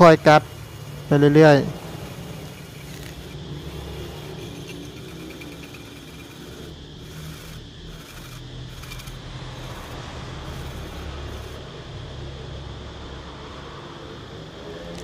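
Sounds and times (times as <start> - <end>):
cordless drill boring metal: 0.0 - 11.6.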